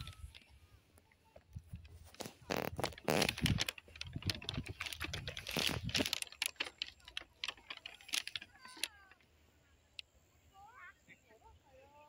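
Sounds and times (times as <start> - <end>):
clicks and rustling: 0.0 - 10.1.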